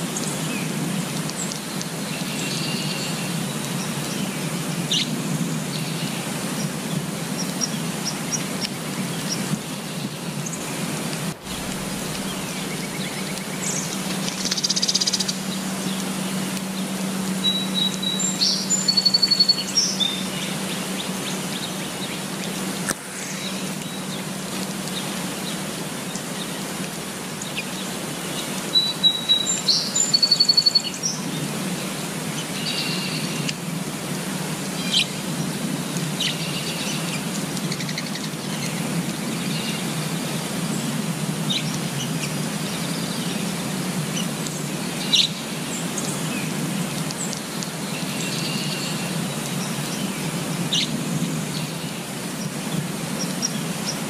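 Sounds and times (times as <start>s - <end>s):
rain falling on leaves: 0.0s - 54.0s
birds chirping: 7.4s - 22.6s.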